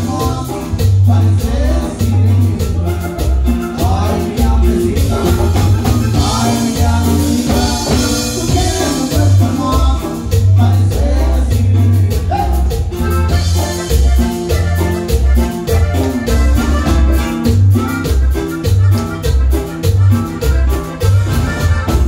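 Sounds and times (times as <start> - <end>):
man singing: 0.0 - 14.8
button accordion: 0.0 - 22.0
live band playing cumbia: 0.0 - 22.0.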